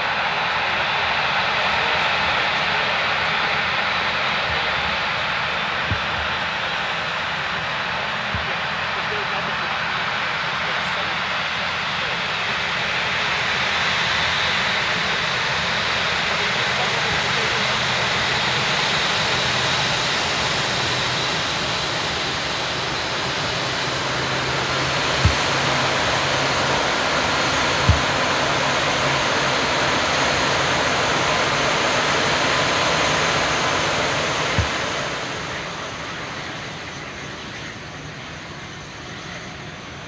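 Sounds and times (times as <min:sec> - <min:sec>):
jet engines roaring in reverse thrust: 0:00.0 - 0:40.0
brief low thumps: 0:05.8 - 0:06.5, 0:27.8 - 0:28.6, 0:34.5 - 0:35.2.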